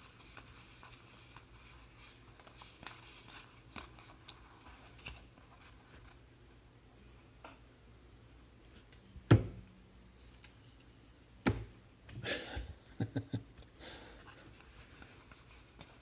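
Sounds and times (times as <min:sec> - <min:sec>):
cards rustling and sliding: 0:00.0 - 0:06.2.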